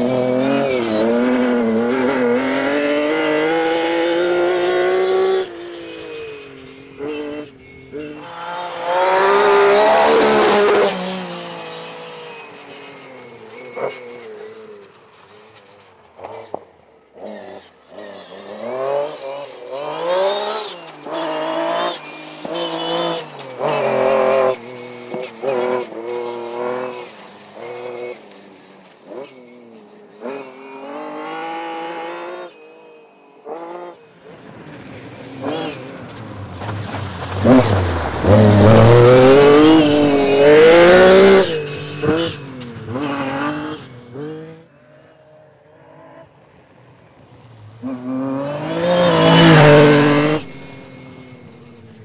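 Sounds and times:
rally car engine revving: 0:00.0 - 0:06.4, 0:07.0 - 0:12.7, 0:16.2 - 0:28.4, 0:34.8 - 0:44.7, 0:47.7 - 0:52.0.

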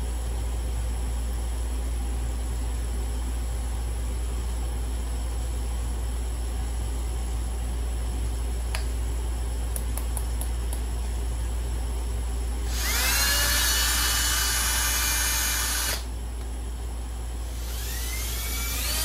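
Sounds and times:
steady low hum: 0:00.0 - 0:19.0
cordless drill whining: 0:12.7 - 0:16.1, 0:17.5 - 0:19.0.

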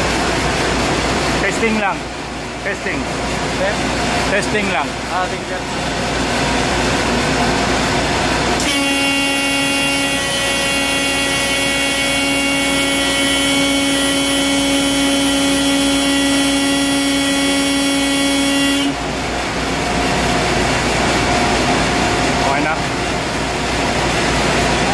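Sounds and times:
compressed-air horn tone: 0:08.6 - 0:19.1.

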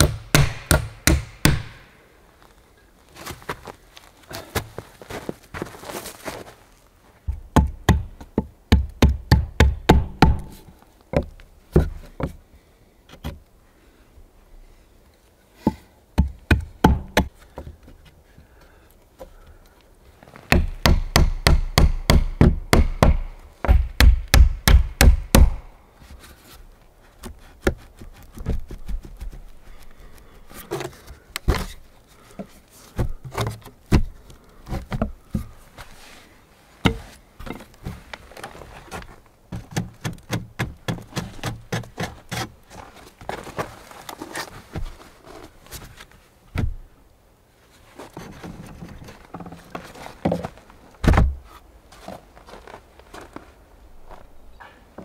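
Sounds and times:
hammer striking wood: 0:00.0 - 0:01.9, 0:08.7 - 0:10.6, 0:16.2 - 0:17.3, 0:20.5 - 0:25.7.

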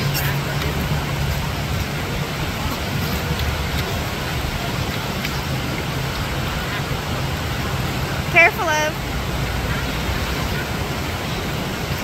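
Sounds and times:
whitewater rapids roaring: 0:00.0 - 0:12.0.

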